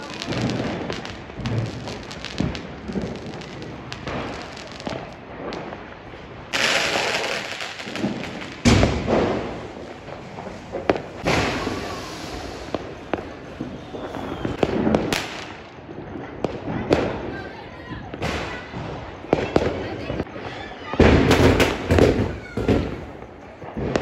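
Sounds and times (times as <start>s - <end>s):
loud firework bang: 0.0s - 5.8s, 6.5s - 15.6s, 20.9s - 24.0s
firework hissing rush: 0.0s - 15.7s
fountain firework hissing: 0.0s - 17.4s
firecrackers popping and banging: 0.0s - 24.0s.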